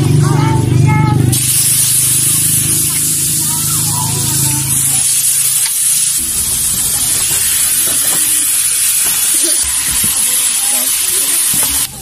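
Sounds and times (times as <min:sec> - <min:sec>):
meat sizzling on grill pan: 0:01.3 - 0:12.0.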